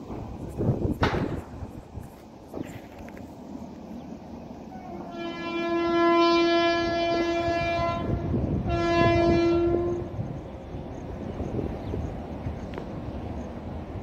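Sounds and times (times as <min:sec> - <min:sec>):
locomotive horn blasts: 0:04.8 - 0:10.2.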